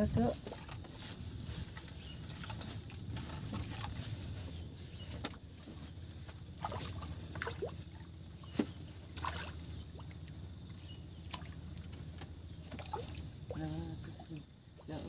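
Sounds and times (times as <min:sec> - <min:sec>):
low steady rumble: 0:00.0 - 0:15.0
water lapping against floats: 0:00.0 - 0:15.0
water plops: 0:09.0 - 0:10.4.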